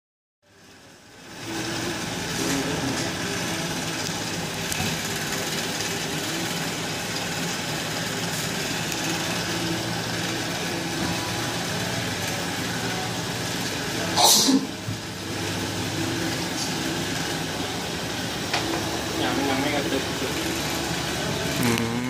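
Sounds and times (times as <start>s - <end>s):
electric motor humming: 15.2s - 22.0s.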